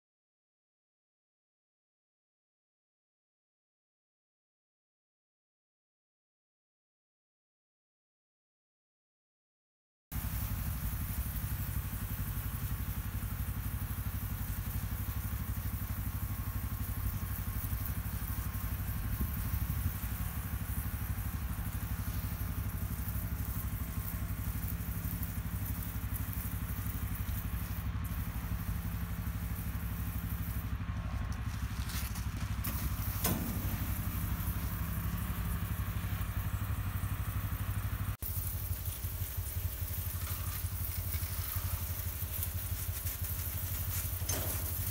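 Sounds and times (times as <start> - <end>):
liquid spray hiss: 10.2 - 44.9
sprayer motor drone: 10.2 - 44.9.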